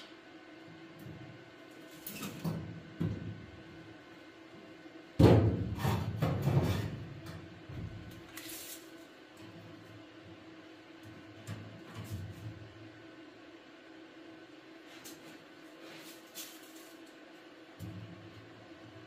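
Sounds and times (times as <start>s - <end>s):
knocks on sheet metal: 5.2s - 6.8s.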